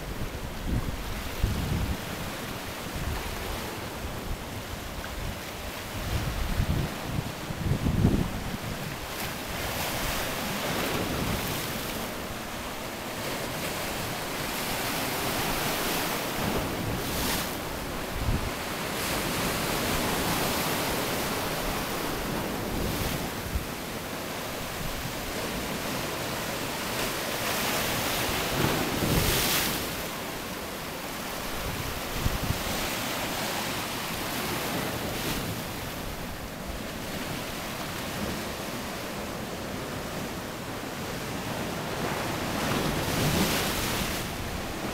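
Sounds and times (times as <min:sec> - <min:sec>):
waves breaking on rocky shore: 0:00.0 - 0:44.9
wind buffeting microphone: 0:02.9 - 0:11.6.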